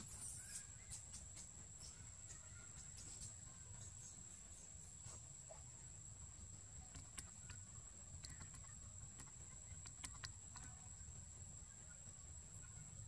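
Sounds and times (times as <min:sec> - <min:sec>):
high-pitched insect trill: 0:00.0 - 0:05.2.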